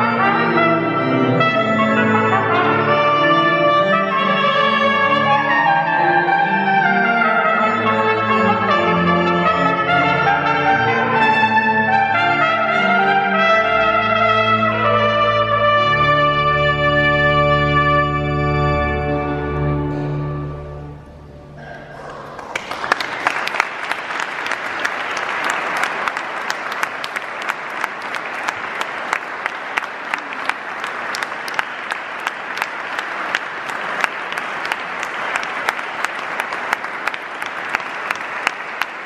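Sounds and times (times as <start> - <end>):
organ chord: 0.0 - 21.6
audience applauding: 21.6 - 39.0.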